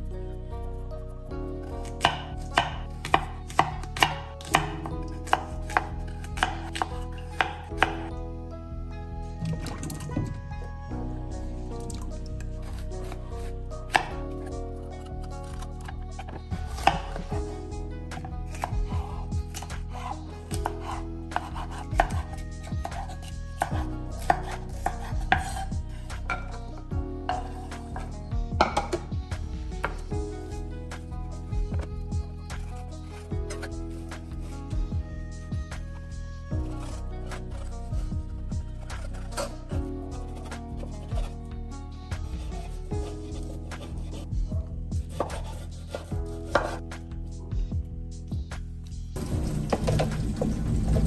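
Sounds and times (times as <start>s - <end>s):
knife chopping on cutting board: 1.9s - 8.1s, 12.7s - 13.2s, 13.9s - 14.4s, 15.4s - 17.4s, 18.1s - 25.7s, 27.3s - 29.1s, 32.6s - 34.4s, 45.0s - 46.8s
knife tapping wooden board: 28.6s - 29.0s.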